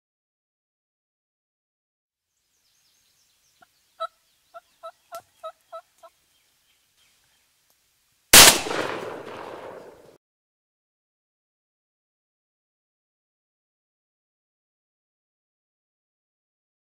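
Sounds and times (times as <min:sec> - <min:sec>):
wild turkey yelping: 0:03.6 - 0:06.2
shotgun blast: 0:08.4 - 0:10.2.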